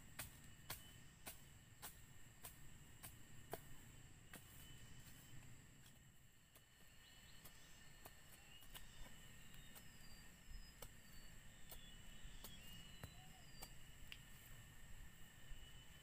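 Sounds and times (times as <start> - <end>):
insects droning: 0.0 - 16.0
bird chirps: 6.8 - 13.9.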